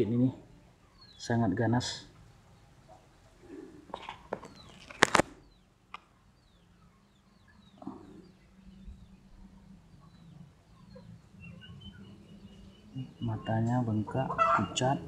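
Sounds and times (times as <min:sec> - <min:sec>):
faint low hum: 0:00.0 - 0:15.0
chicks peeping: 0:02.9 - 0:05.7, 0:06.4 - 0:15.0.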